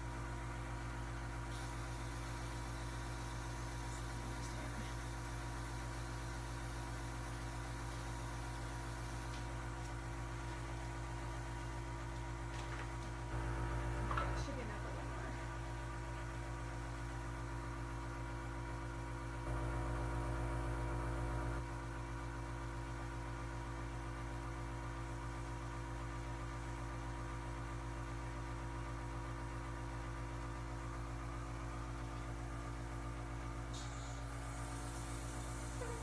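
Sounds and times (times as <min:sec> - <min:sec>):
airbrush compressor humming: 0:33.7 - 0:36.0.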